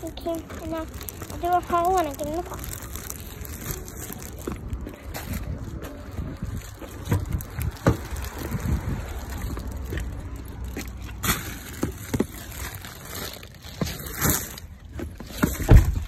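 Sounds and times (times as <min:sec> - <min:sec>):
handling knocks and rustling: 0:00.0 - 0:16.0
wind rumble on microphone: 0:02.9 - 0:10.8, 0:15.6 - 0:16.0.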